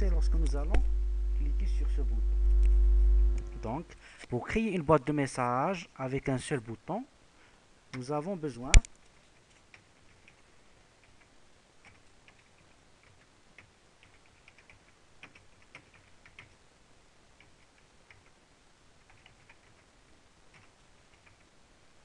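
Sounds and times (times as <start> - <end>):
typing on computer keyboard: 9.6 - 16.6, 17.4 - 18.4, 19.0 - 19.9, 20.5 - 21.5.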